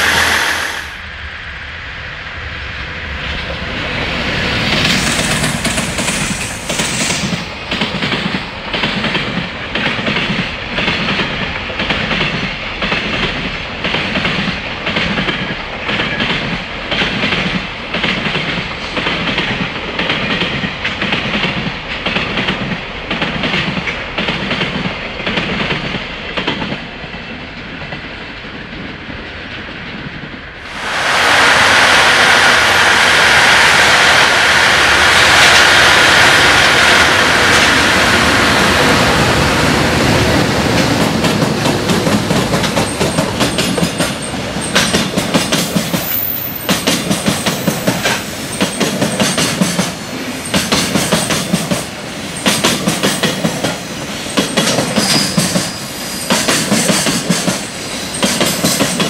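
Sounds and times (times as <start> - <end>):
electric locomotive rushing whine: 0.0 - 59.0
train wheels clacking over joints: 40.6 - 59.0.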